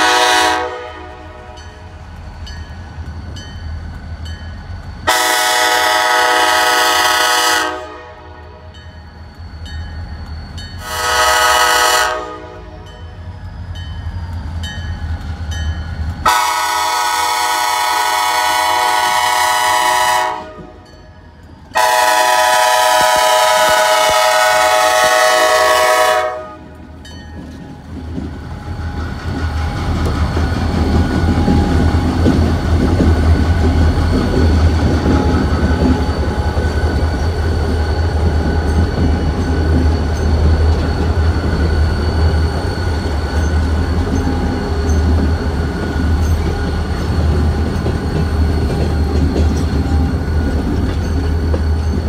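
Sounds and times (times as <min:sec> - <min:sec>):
locomotive air horn blasts: 0:00.0 - 0:01.6, 0:05.1 - 0:08.7, 0:10.8 - 0:12.8, 0:16.2 - 0:20.8, 0:21.8 - 0:26.7
train low rumble: 0:00.0 - 0:52.0.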